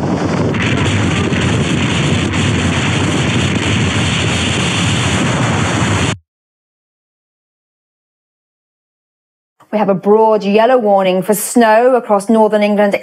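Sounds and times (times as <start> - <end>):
strong wind buffeting microphone: 0.0 - 6.2.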